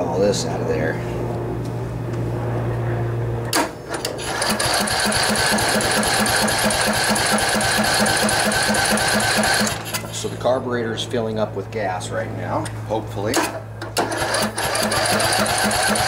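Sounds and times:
engine starter cranking: 3.5 - 10.1, 13.4 - 16.0.

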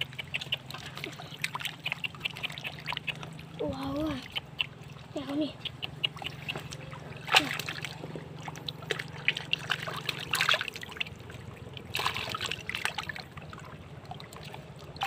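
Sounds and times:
sharp wet clicks: 0.0 - 15.0
water dripping and trickling: 0.0 - 15.0
hands splashing in muddy water: 6.0 - 15.0.

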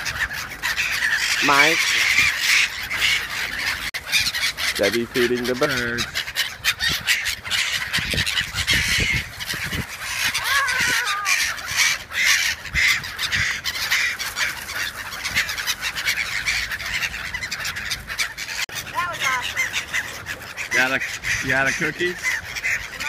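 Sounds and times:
gulls calling harshly: 0.0 - 23.0.

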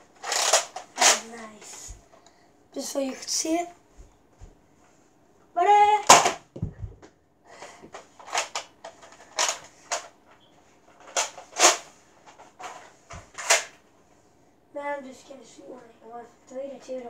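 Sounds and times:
plastic clacks and rasps: 0.2 - 1.8, 7.9 - 10.1.

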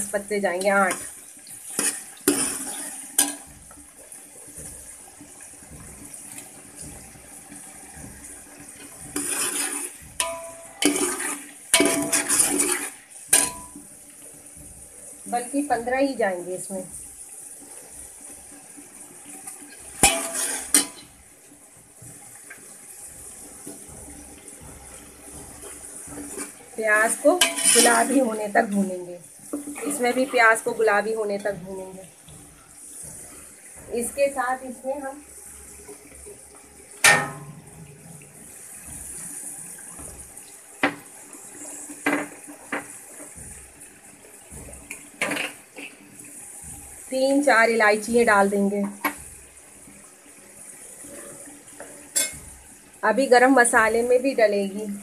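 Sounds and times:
onions sizzling in hot oil: 0.0 - 55.0
utensil clanking on metal pot: 0.6 - 3.8, 7.8 - 13.8, 20.0 - 21.1, 27.3 - 28.3, 37.0 - 37.8, 52.1 - 52.5
spoon knocking against pot: 10.0 - 11.1, 13.3 - 13.8, 37.0 - 37.7, 52.1 - 52.5
metal spoon stirring: 27.4 - 28.2.

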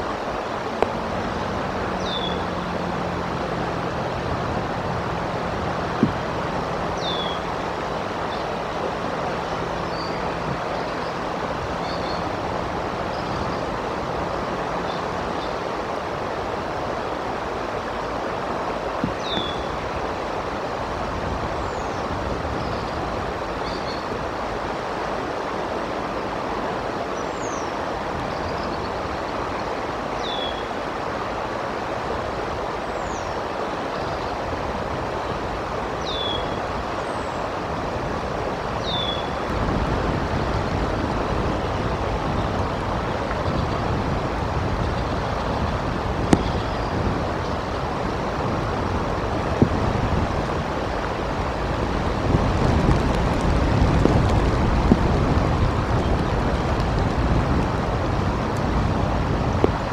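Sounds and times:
wind on microphone: 0.0 - 59.9.

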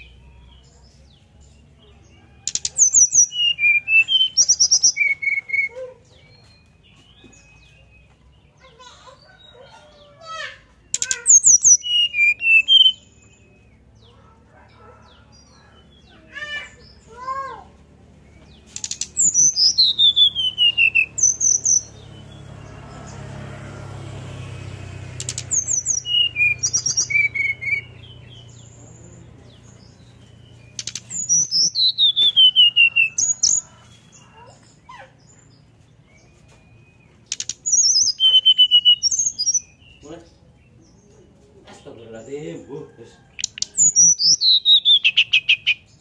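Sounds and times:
bird whistling song: 2.4 - 8.8, 10.8 - 14.2, 18.2 - 22.4, 24.5 - 28.8, 29.7 - 40.0, 43.4 - 46.0.

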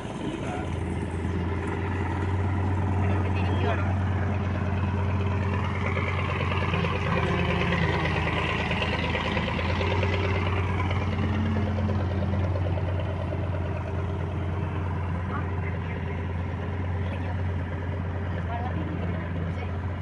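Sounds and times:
water and wind rushing: 0.0 - 13.6
motorboat engine humming: 0.0 - 20.0.

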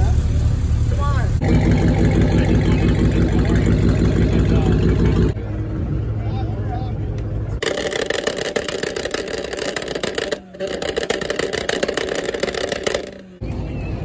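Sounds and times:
exhaust crackle: 0.0 - 6.2, 7.1 - 13.5.

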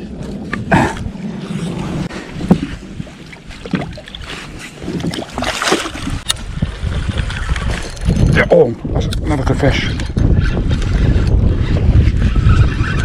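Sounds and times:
wind on microphone: 0.0 - 13.0
water lapping at boat hull: 1.7 - 7.5
fish thrashing and splashing: 2.4 - 6.3.

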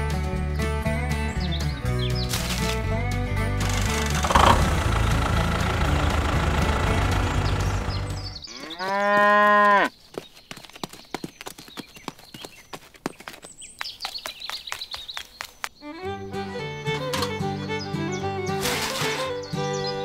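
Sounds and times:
engine-like drone: 3.6 - 8.4
cow mooing: 8.5 - 9.9.

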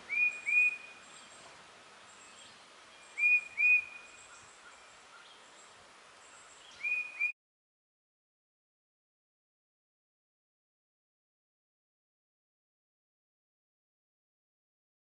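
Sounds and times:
songbird whistling upslurred notes: 0.0 - 1.4, 2.2 - 5.4, 6.6 - 7.4
faint high bird chirps: 0.0 - 1.5, 2.1 - 7.4
soft outdoor hiss: 0.0 - 7.3.

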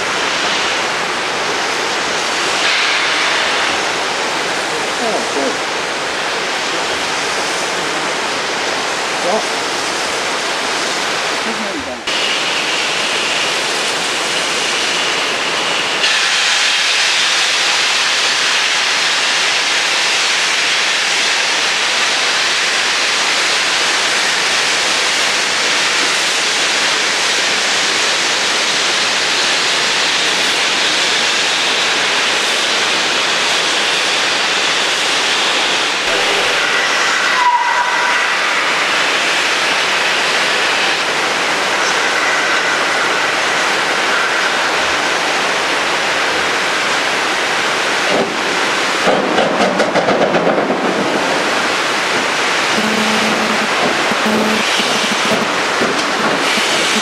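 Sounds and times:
steam locomotive pulling away: 0.0 - 11.5, 12.1 - 46.0, 48.0 - 57.0
steam hissing loudly: 0.0 - 57.0
water rushing over weir: 52.6 - 57.0.

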